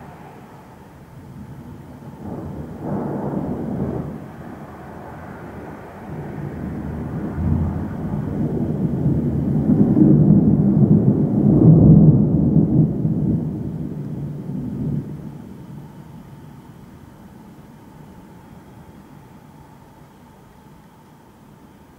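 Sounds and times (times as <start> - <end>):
thunder rolling: 0.0 - 16.2.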